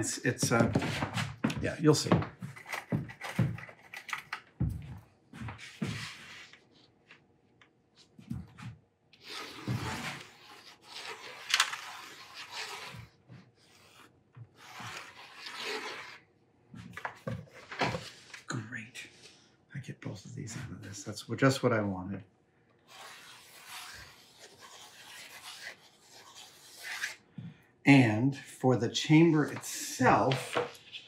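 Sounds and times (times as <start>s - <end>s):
pencil scratching on plywood: 9.2s - 16.2s, 22.9s - 27.2s.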